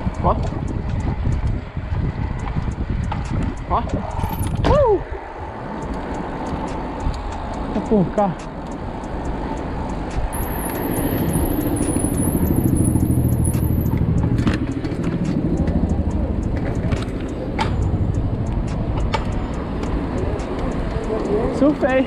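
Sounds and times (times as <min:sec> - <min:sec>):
rolling road noise: 0:00.0 - 0:22.0
car engine running: 0:10.4 - 0:19.4.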